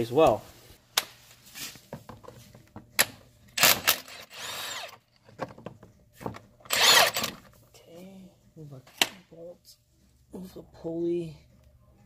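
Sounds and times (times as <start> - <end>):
impact wrench whirring: 3.6 - 5.0, 6.7 - 7.4.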